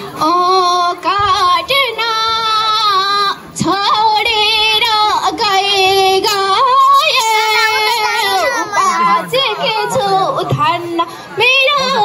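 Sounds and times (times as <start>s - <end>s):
girl singing into microphone: 0.0s - 12.0s.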